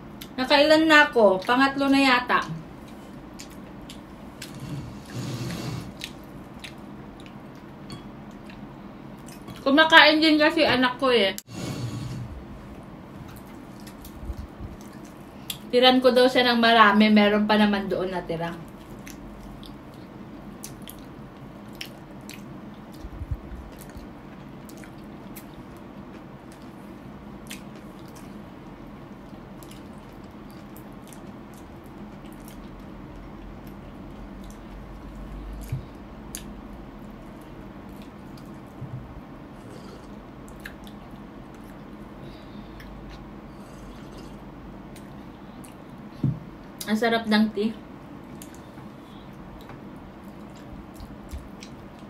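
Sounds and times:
wet chewing and mouth sounds: 2.7s - 9.7s, 13.2s - 15.7s, 18.6s - 46.9s, 48.2s - 52.0s
soft thumps: 46.2s - 46.5s.

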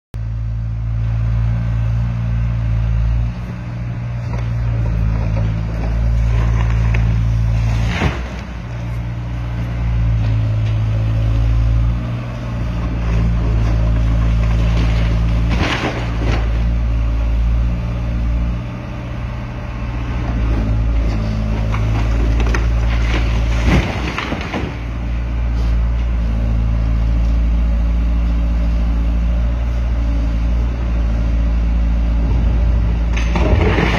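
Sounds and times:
diesel engine running under load: 0.2s - 33.9s
masonry breaking and rubble falling: 13.2s - 16.7s, 21.6s - 25.0s, 33.1s - 33.9s.

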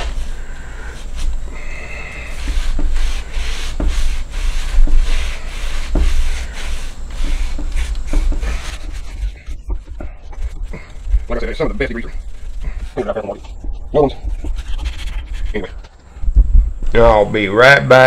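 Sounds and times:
rag wiping painted wood: 0.0s - 15.8s
steady low rumble: 4.1s - 17.6s.

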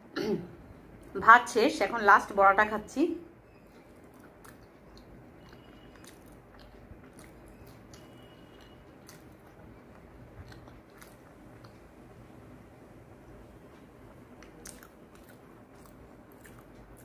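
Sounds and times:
chewing soft food: 3.5s - 12.2s, 13.2s - 17.0s
wet mouth clicks: 4.1s - 9.6s, 14.4s - 17.0s.

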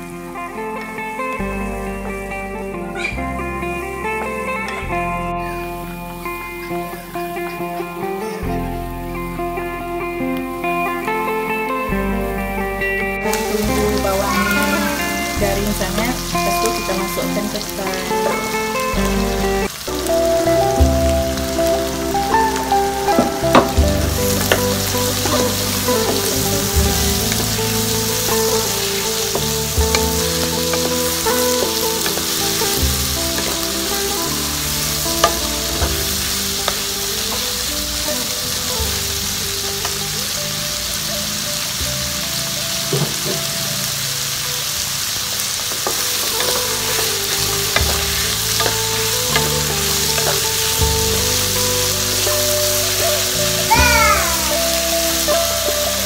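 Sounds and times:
food sizzling in hot oil: 13.3s - 56.0s
utensil clicking against pan: 45.8s - 51.4s.

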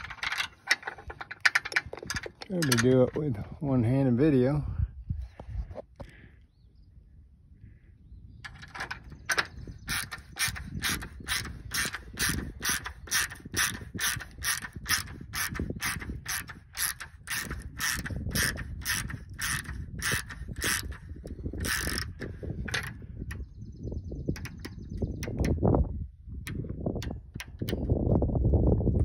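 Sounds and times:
socket ratchet clicking: 8.5s - 23.4s, 24.4s - 25.7s, 26.5s - 28.0s.

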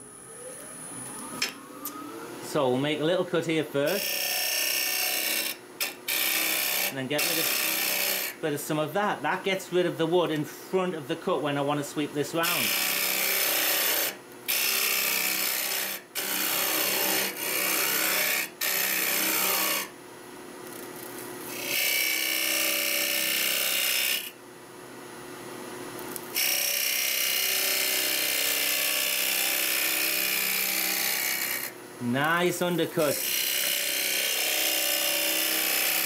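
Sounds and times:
tool cutting wood on lathe: 3.9s - 8.4s, 12.4s - 19.9s, 21.5s - 24.4s, 26.4s - 31.8s, 32.9s - 36.0s.

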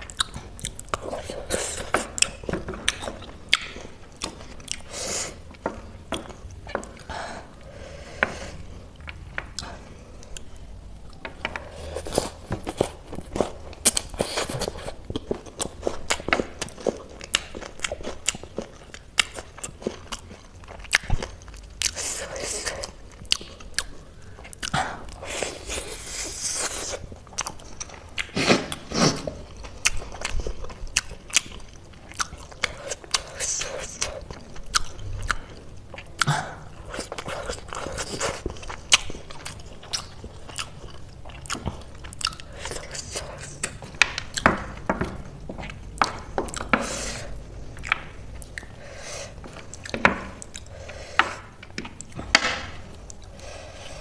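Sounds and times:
crunchy chewing: 9.0s - 52.2s.

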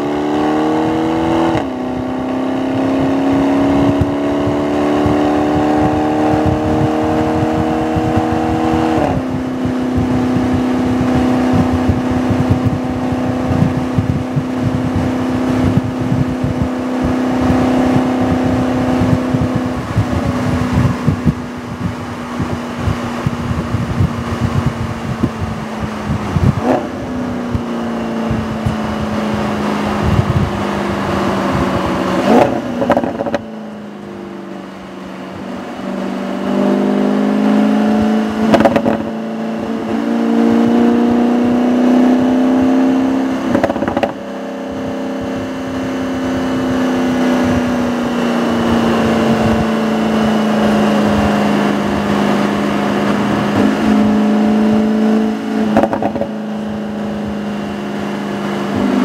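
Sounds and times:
car engine under light throttle: 0.0s - 59.0s.

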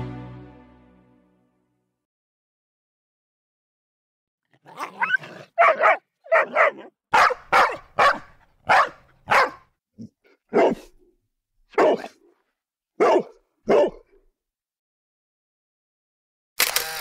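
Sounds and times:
dog barking: 4.8s - 9.7s, 10.5s - 11.0s, 11.7s - 12.2s, 13.0s - 14.2s.

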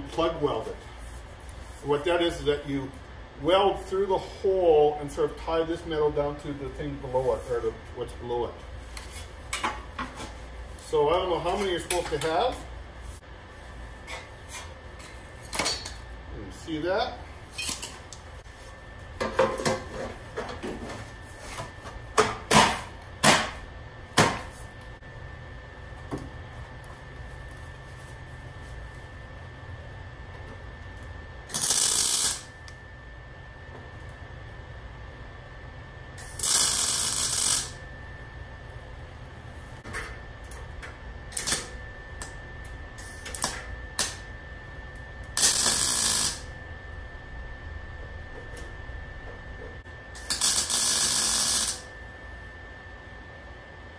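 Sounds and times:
welder arc crackling: 31.5s - 32.8s, 36.2s - 37.8s, 41.3s - 42.4s, 43.0s - 44.2s, 45.2s - 46.5s, 50.2s - 51.9s.

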